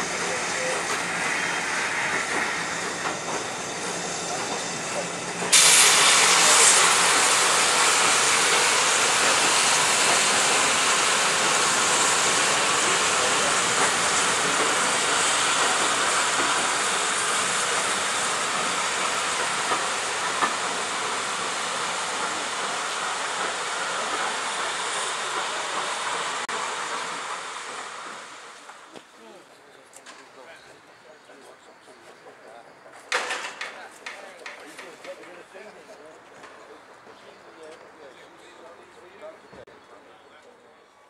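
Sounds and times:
hiss of escaping steam: 0:00.0 - 0:28.9
train coaches rolling on rails: 0:00.0 - 0:41.0.

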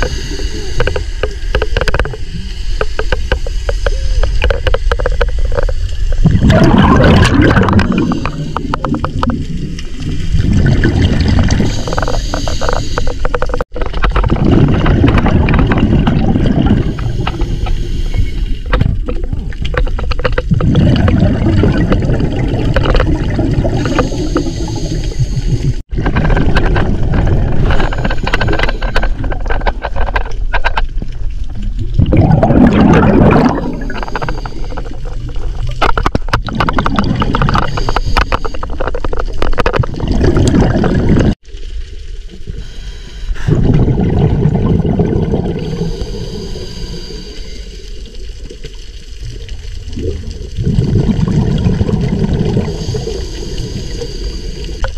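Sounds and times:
exhaled bubbles gurgling: 0:00.0 - 0:54.9
scuba regulator breaths: 0:11.5 - 0:13.7, 0:16.8 - 0:18.7, 0:23.7 - 0:25.8, 0:42.5 - 0:43.7, 0:45.5 - 0:48.0, 0:52.6 - 0:54.9.

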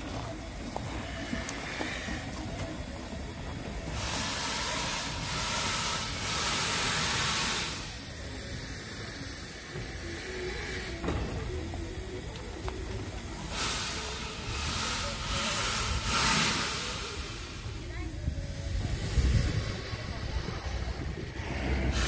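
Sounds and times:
steam locomotive hissing steam: 0:00.0 - 0:22.0
low rumble: 0:17.0 - 0:22.0.

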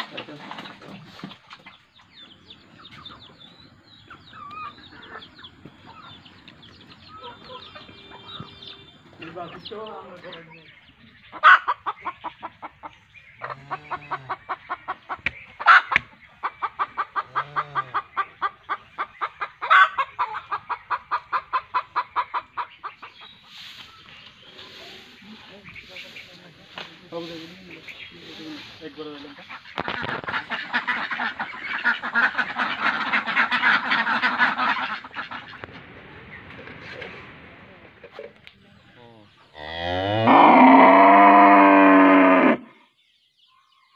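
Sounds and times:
hen clucking: 0:00.0 - 0:35.9
cow mooing: 0:39.6 - 0:42.7.

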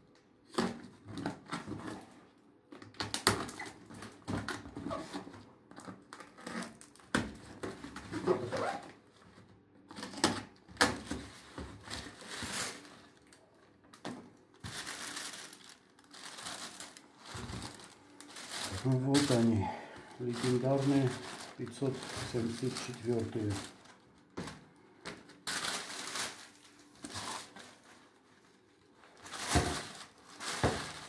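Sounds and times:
tissue paper crinkling: 0:11.2 - 0:13.5, 0:14.5 - 0:24.4, 0:25.2 - 0:31.0.

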